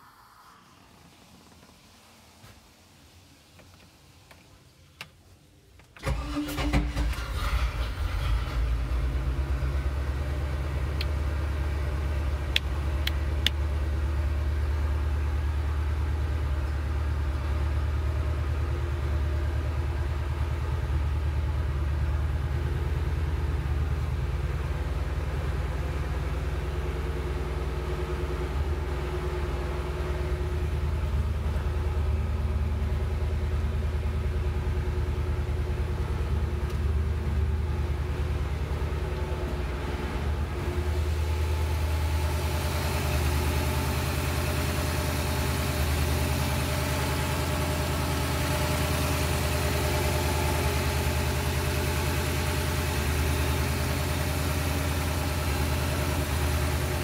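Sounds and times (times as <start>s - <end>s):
boat engine starting and idling: 6.0s - 57.0s.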